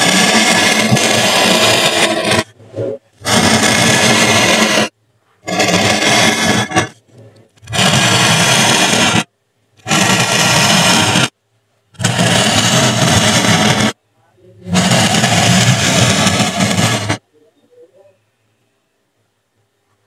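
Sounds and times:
tool tip scraping foam board: 0.0 - 2.6, 3.2 - 11.3, 12.0 - 14.0, 14.7 - 17.2.

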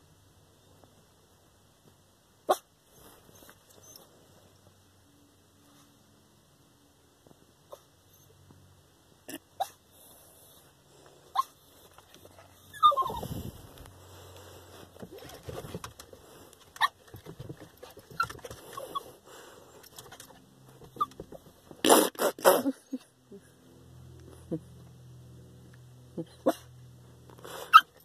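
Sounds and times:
small dog whimpering: 11.3 - 11.6, 12.6 - 13.5.

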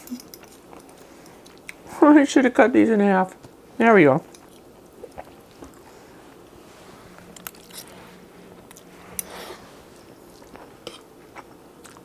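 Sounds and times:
quiet chewing: 0.0 - 1.9, 4.3 - 12.0.

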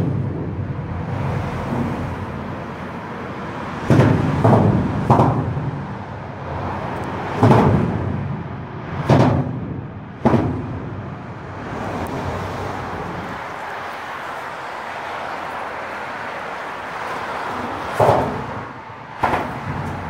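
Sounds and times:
traffic noise: 0.0 - 20.0
tyres thumping over expansion joint: 3.8 - 6.0, 7.3 - 8.3, 17.8 - 20.0.

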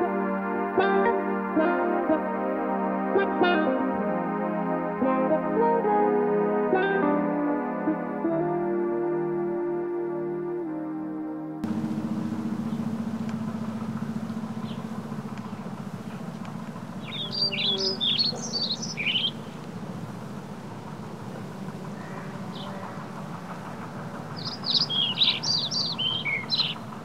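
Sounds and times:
songbird chirping: 11.6 - 27.0
steady low hum: 11.6 - 27.0.

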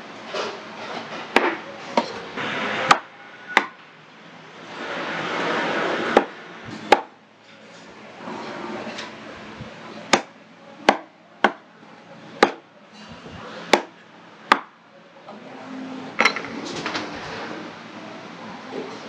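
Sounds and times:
knife chopping on wooden board: 10.9 - 11.6, 12.4 - 12.6, 13.7 - 13.9, 14.5 - 14.7.

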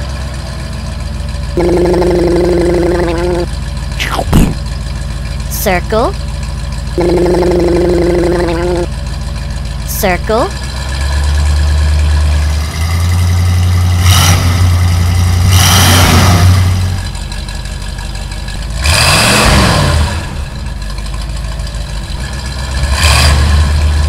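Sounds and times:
cartoon truck engine revving: 1.4 - 24.0.

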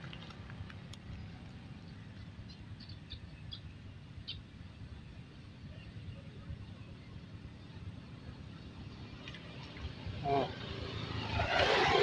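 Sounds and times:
small bird chirping: 1.0 - 4.5.

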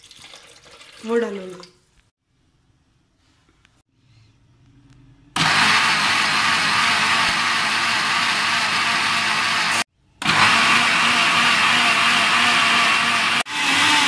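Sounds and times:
electric blender whirring: 5.4 - 14.0.

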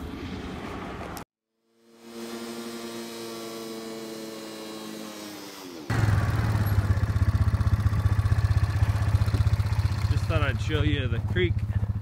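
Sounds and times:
four-wheeler engine running: 5.5 - 12.0.

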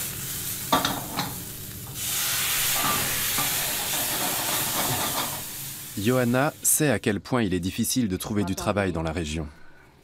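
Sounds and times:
flambe hiss: 0.0 - 6.8
prawns sizzling in frying pan: 0.0 - 6.9.

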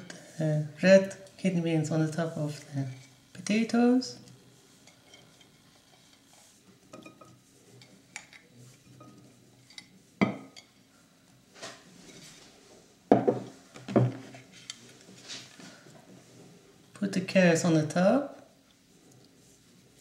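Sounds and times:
plate and bowl clinking: 6.9 - 7.4.

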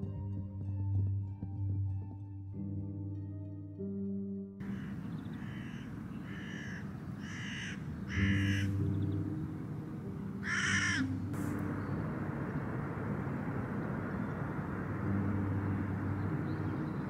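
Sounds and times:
crow cawing: 4.6 - 8.8, 10.4 - 11.1.

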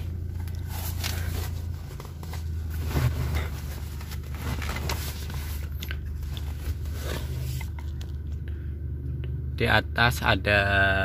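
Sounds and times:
handling clicks and rustles: 0.0 - 8.5
diesel engine idling: 0.0 - 11.0.

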